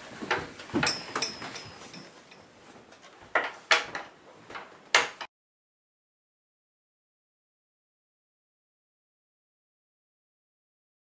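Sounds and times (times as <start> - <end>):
sharp knocks and thumps: 0.0 - 2.2, 3.2 - 5.3
soft rustling: 0.0 - 4.8.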